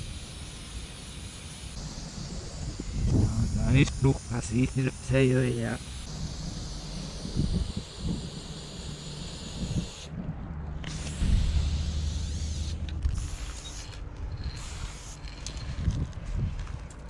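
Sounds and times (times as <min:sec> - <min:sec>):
spray paint can hissing: 0:00.0 - 0:10.1, 0:10.8 - 0:15.8
low rumble: 0:10.0 - 0:14.6.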